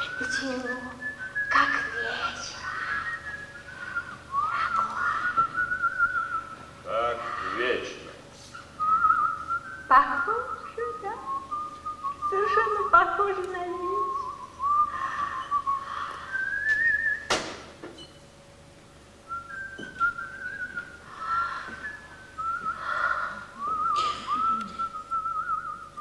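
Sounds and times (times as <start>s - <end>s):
person whistling a tune: 0.0s - 6.6s, 8.8s - 12.9s, 13.9s - 17.3s, 19.3s - 21.0s, 21.8s - 22.8s, 23.6s - 26.0s
sharp knock: 17.3s - 17.7s.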